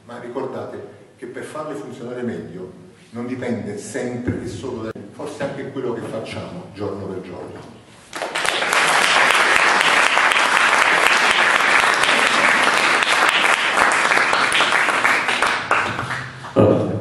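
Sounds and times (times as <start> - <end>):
audience applauding: 8.1 - 16.6.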